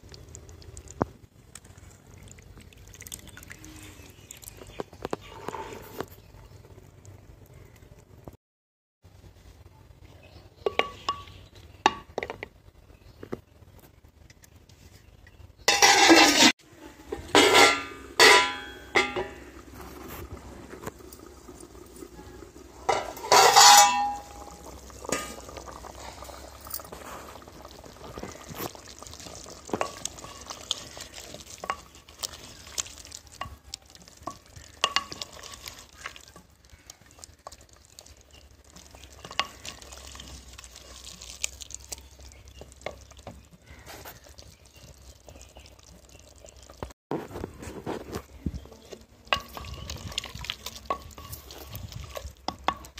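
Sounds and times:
water splashing into pot: 1.8 - 4.8, 17.2 - 46.9, 48.3 - 52.9
ladle stirring and scraping pot: 3.1 - 6.3, 14.7 - 52.9.

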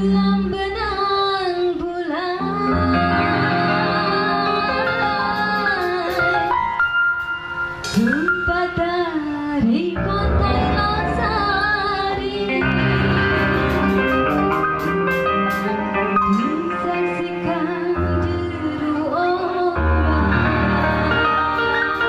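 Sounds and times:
woman singing: 0.0 - 6.6, 8.0 - 12.7, 16.1 - 22.0
live band playing: 1.8 - 22.0.

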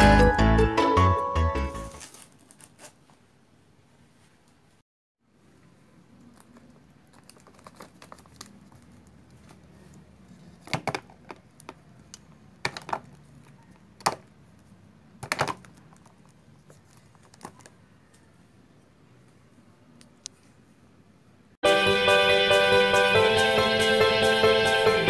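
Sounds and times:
plastic eggs clattering in a box: 6.4 - 9.2, 10.6 - 11.8, 12.6 - 13.2.

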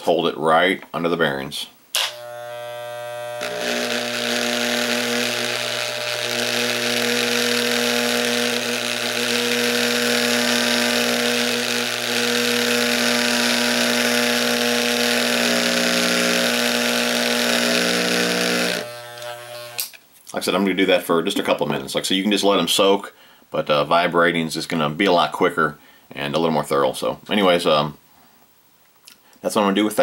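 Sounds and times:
hair clipper buzzing: 1.9 - 20.0.

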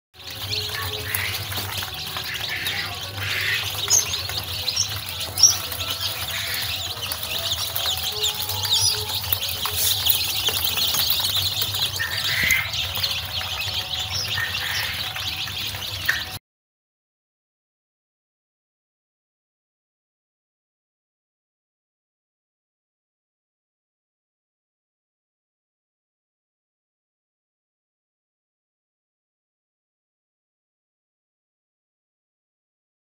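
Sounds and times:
chicks peeping: 0.2 - 16.4.

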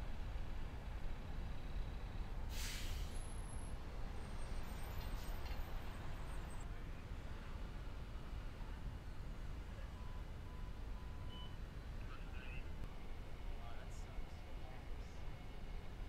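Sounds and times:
bus idling: 0.0 - 16.0
street traffic rumble: 0.0 - 16.0
air release hiss: 2.5 - 3.2.

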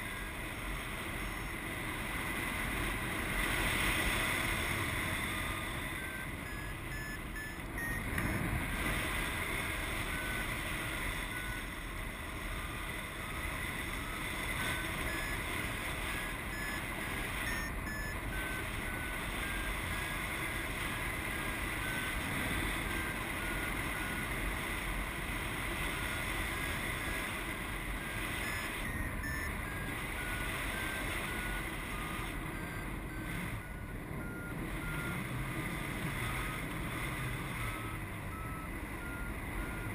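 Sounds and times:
variometer beeping: 0.0 - 39.9.

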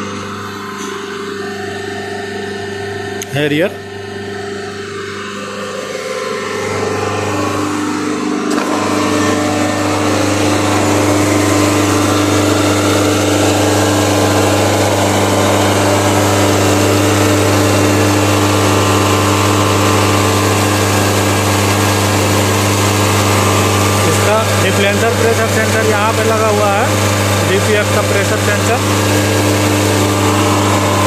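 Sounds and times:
diesel engine running: 6.3 - 31.0.

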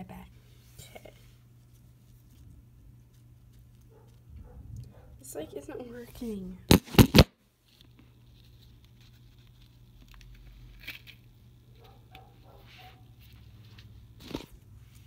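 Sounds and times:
faint rubbing and rustling: 11.8 - 15.0.

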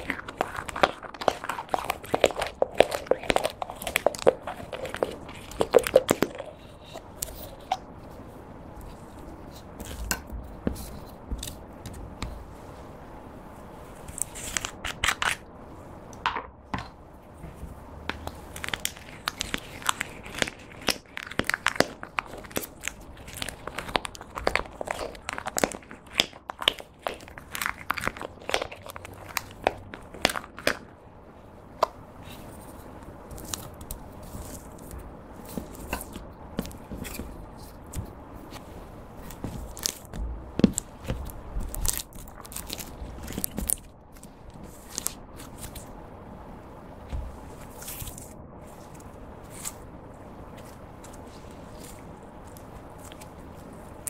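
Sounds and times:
sticky gel crackles and clicks: 0.0 - 7.8, 18.2 - 30.9.

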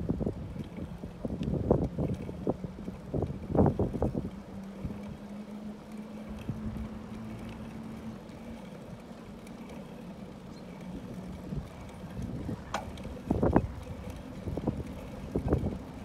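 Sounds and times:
wind on microphone: 0.0 - 5.2, 11.3 - 16.0
bicycle tyres rolling on asphalt: 0.0 - 16.0.

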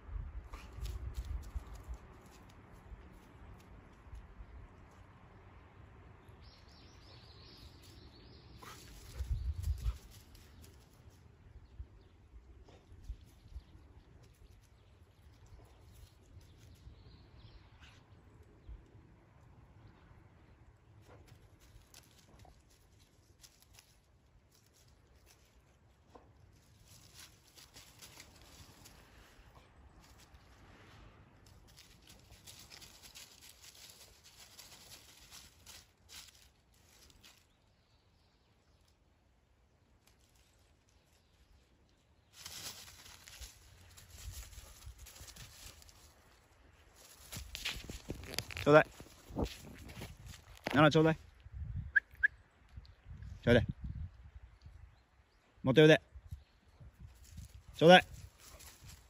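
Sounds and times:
bird chirp: 6.2 - 10.9
dry leaves crackling and rustling: 8.6 - 11.2, 21.3 - 37.7, 39.6 - 50.8, 57.1 - 59.0
dog stepping through dry leaves: 31.7 - 37.4, 42.4 - 46.2.

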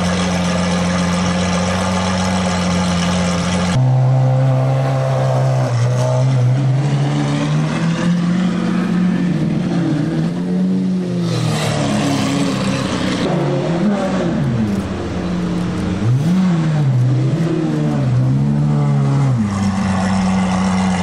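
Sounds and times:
sports car engine running: 0.0 - 3.8, 13.2 - 18.7.

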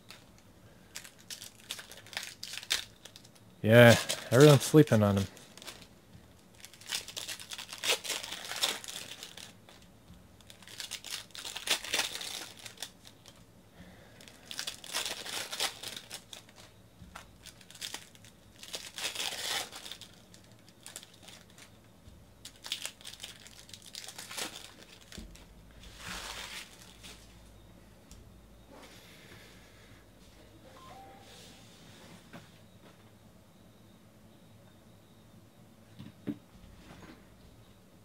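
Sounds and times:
foil wrappers crinkling: 0.0 - 13.4, 14.2 - 21.7, 22.4 - 27.3.

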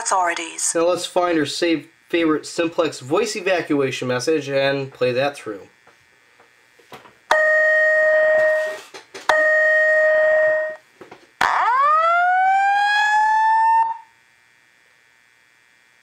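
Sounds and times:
fire alarm long steady tones: 7.3 - 14.7
fire alarm rising whoop: 11.4 - 14.2.

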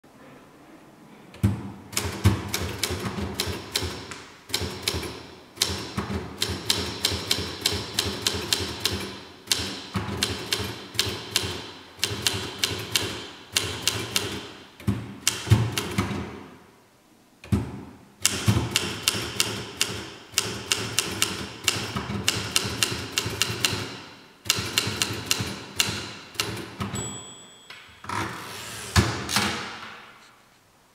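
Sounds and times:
typewriter typing: 2.0 - 14.5, 18.2 - 27.0
typewriter bell ringing: 26.9 - 28.0.

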